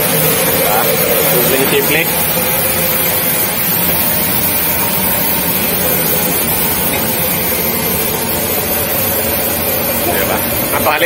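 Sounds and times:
rice milling machine running: 0.0 - 11.0.

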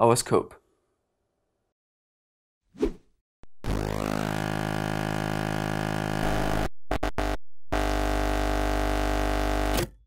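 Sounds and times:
synthesizer chords: 3.4 - 9.4.

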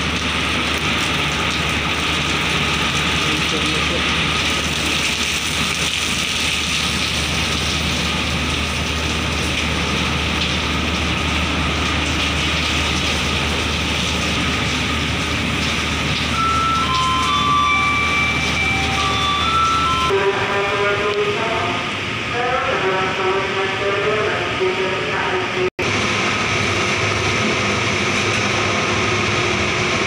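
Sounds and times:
ferry engines humming: 0.0 - 30.0
short high beeping tones: 16.3 - 20.3.

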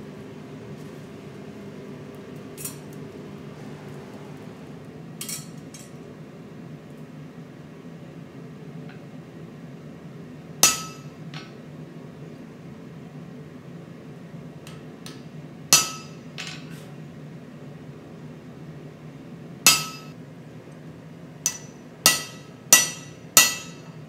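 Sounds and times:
hammer striking punch on metal: 10.6 - 11.2, 15.7 - 16.2, 19.7 - 20.1, 21.5 - 23.9.

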